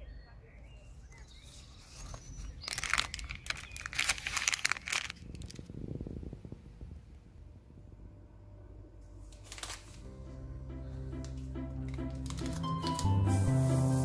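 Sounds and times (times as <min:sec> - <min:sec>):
crackling crinkling rustle: 0:01.1 - 0:07.1, 0:09.0 - 0:10.2, 0:11.2 - 0:13.2
soft low rustle: 0:01.4 - 0:08.2.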